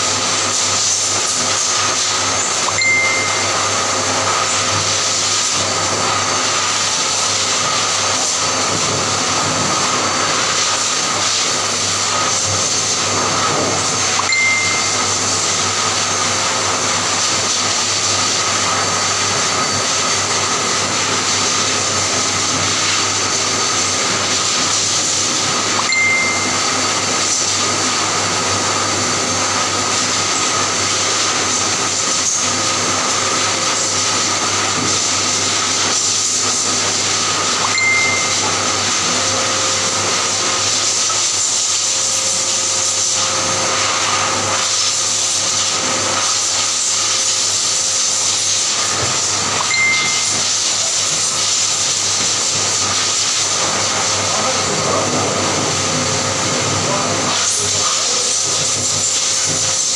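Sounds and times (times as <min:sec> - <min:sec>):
electric clipper running: 0:00.0 - 0:59.9
short high tone: 0:02.7 - 0:03.8, 0:14.2 - 0:15.4, 0:25.8 - 0:27.0, 0:37.6 - 0:38.9, 0:49.6 - 0:50.7.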